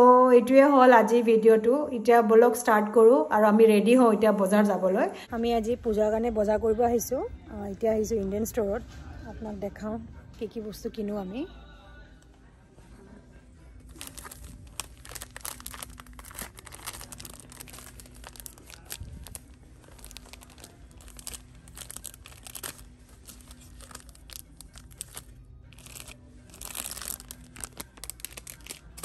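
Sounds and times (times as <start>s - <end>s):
plastic bags crinkling: 13.9s - 29.0s.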